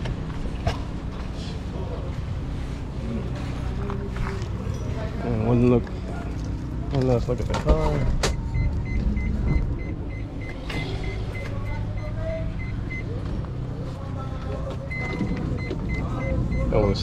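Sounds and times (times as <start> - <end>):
steady low hum: 0.0 - 17.0
sliding door high-pitched beeping: 8.2 - 13.1, 14.9 - 17.0.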